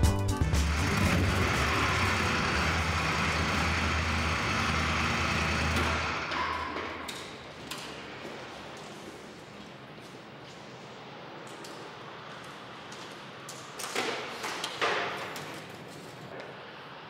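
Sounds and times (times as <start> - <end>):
motorcycle engine running: 0.4 - 6.2.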